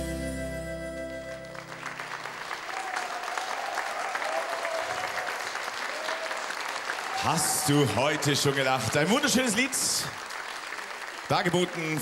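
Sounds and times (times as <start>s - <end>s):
held music chord: 0.0s - 1.9s
audience applause: 1.3s - 12.0s.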